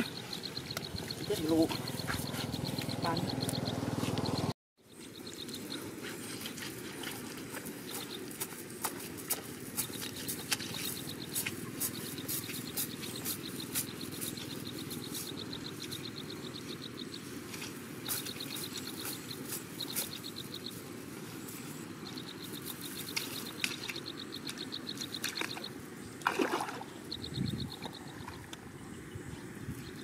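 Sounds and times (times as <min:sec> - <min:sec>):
insect chirping in pulses: 0:00.0 - 0:04.5, 0:21.5 - 0:29.1
low outdoor background: 0:00.0 - 0:30.0
water splash: 0:26.2 - 0:26.9.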